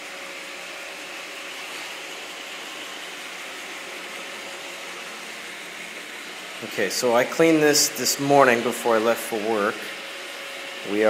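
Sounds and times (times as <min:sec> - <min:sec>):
faint steady hum: 0:04.9 - 0:07.8.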